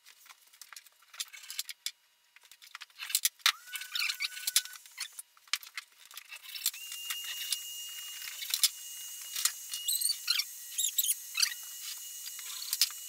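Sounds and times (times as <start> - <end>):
high-pitched whine: 3.5 - 5.2, 6.7 - 13.0
squeaky chirps: 3.6 - 5.2, 9.8 - 11.6.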